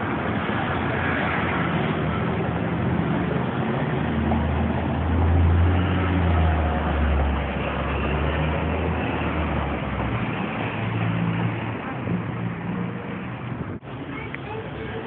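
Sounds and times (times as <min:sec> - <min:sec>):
traffic noise: 0:00.0 - 0:15.0
vehicle engine passing by: 0:00.4 - 0:14.0.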